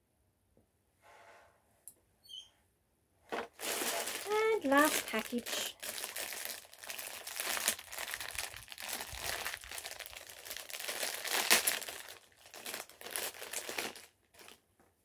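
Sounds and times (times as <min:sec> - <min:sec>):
metallic wrapper crackling: 0:03.5 - 0:14.6.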